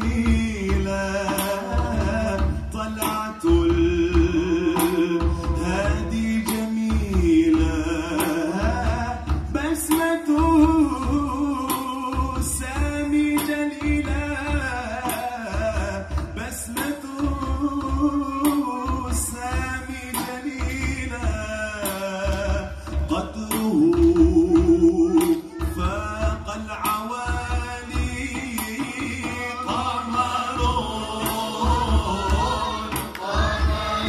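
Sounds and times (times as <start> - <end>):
steady drum beat: 0.0 - 34.0
choir singing: 29.4 - 34.0.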